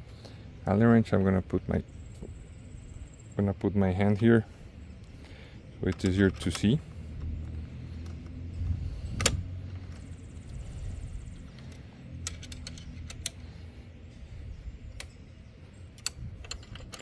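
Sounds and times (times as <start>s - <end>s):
steady low rumble: 0.0s - 17.0s
metal tools clinking: 16.0s - 17.0s.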